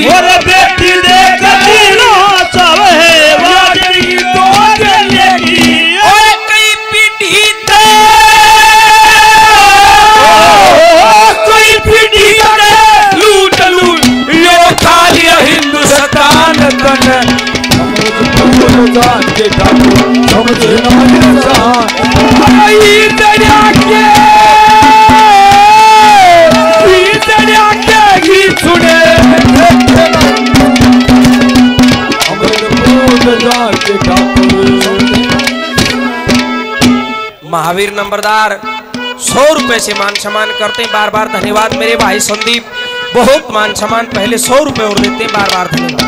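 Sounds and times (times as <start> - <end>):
tabla and drums beat: 0.0 - 46.0
ornamented melodic instrument: 11.2 - 46.0.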